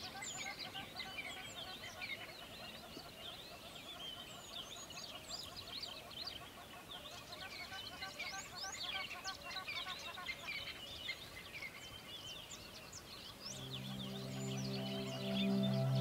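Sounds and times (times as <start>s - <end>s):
chorus of birds calling: 13.4s - 16.0s.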